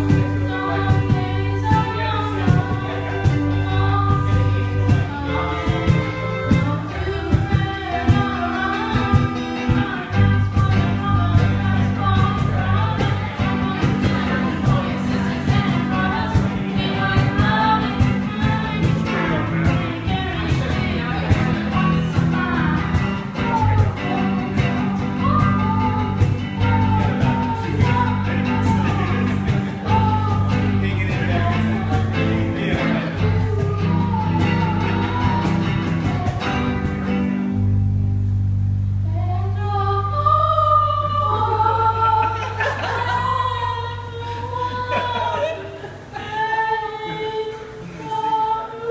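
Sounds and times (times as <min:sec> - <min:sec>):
person singing lead vocal: 0:00.0 - 0:37.3, 0:39.1 - 0:48.9
cajon beat: 0:00.0 - 0:37.8
bass guitar: 0:00.0 - 0:46.2
electric guitar: 0:00.0 - 0:48.9.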